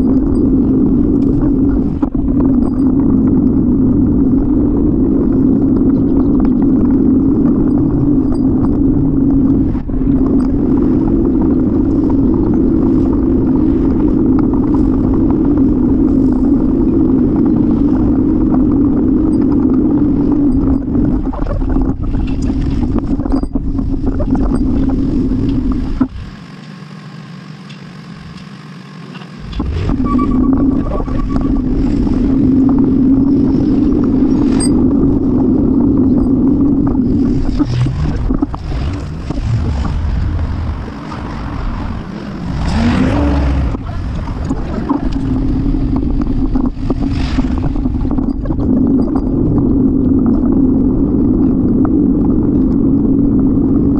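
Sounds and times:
wind and rolling noise: 0:00.0 - 0:53.9.

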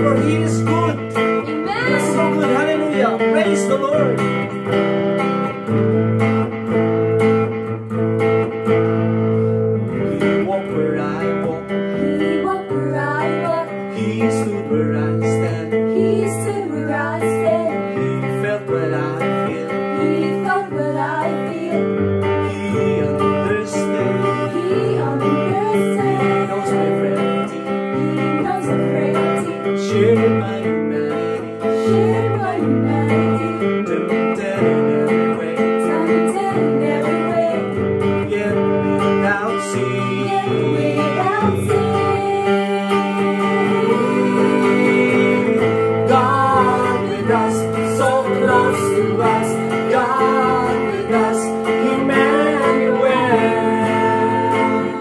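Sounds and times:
strummed guitar: 0:00.0 - 0:55.0
group singing a worship song: 0:11.8 - 0:14.8, 0:15.5 - 0:33.8, 0:34.4 - 0:38.5, 0:39.6 - 0:55.0.

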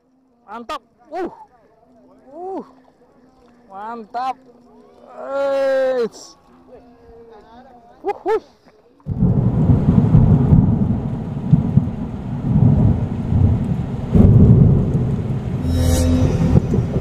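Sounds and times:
loud rough rumbling: 0:09.1 - 0:17.0.

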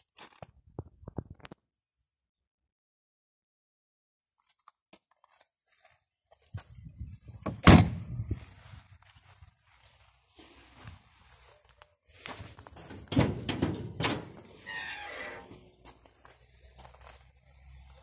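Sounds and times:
hood hinges creaking squeal: 0:13.0 - 0:15.7
car hood metallic clunks: 0:13.1 - 0:14.4.

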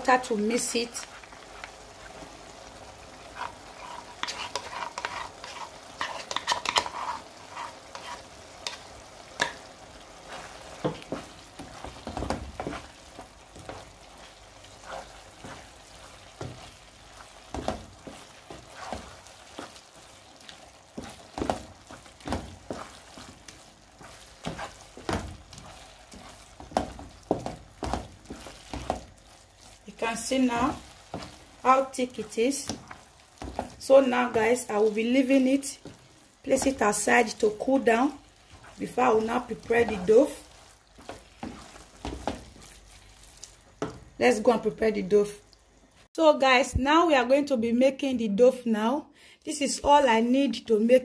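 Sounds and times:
faint simmer: 0:00.0 - 0:46.2
spoon scraping and knocking pot: 0:03.4 - 0:08.8.

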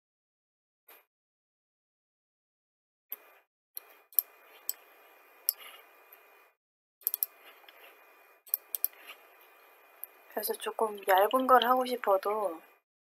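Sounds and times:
computer mouse clicks: 0:03.1 - 0:06.3, 0:07.0 - 0:09.2
faint room noise hiss: 0:03.2 - 0:06.5, 0:07.1 - 0:12.8.

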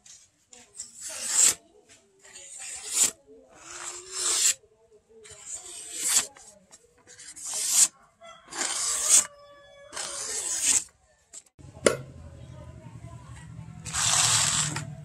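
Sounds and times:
blade slicing through paper: 0:00.8 - 0:01.6, 0:02.4 - 0:04.6, 0:05.2 - 0:06.5, 0:07.1 - 0:07.9, 0:08.5 - 0:09.3, 0:09.9 - 0:10.9, 0:13.8 - 0:14.9.

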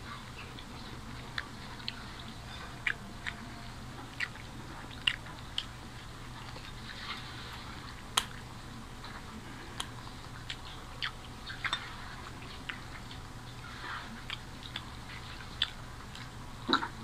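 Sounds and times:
low steady hum: 0:00.0 - 0:17.0
people chewing and biting: 0:00.0 - 0:17.0
mouth clicks and smacks: 0:08.1 - 0:08.5.

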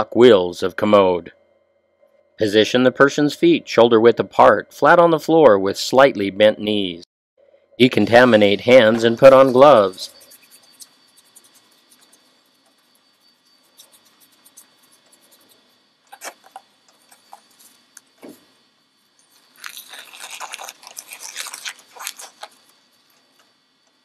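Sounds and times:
gloves rustling and crinkling: 0:19.2 - 0:23.5.

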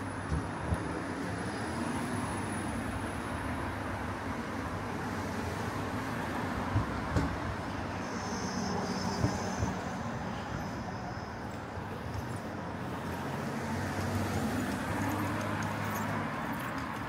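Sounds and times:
passing vehicles: 0:00.0 - 0:17.0.

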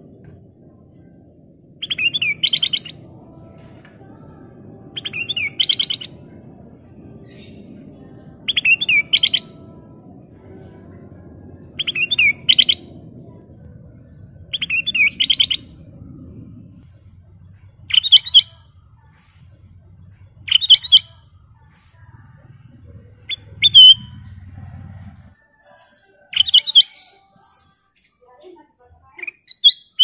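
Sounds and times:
bulbul singing: 0:01.8 - 0:10.0, 0:10.6 - 0:16.0, 0:17.6 - 0:19.1, 0:20.1 - 0:22.2, 0:23.1 - 0:24.3.

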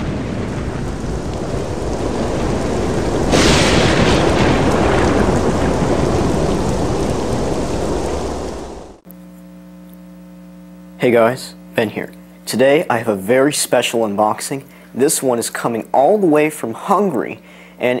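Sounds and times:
loud thunderclap: 0:00.0 - 0:09.0
rain: 0:00.0 - 0:09.0
rumbling thunder: 0:00.0 - 0:09.0.

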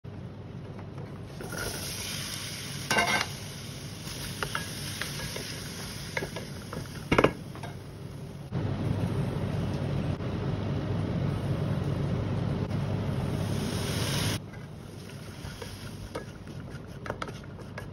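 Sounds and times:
seeds sizzling in hot oil: 0:01.3 - 0:07.8, 0:13.2 - 0:16.6
low steady rumble: 0:07.5 - 0:16.1
loud sizzling rush: 0:12.6 - 0:16.1.

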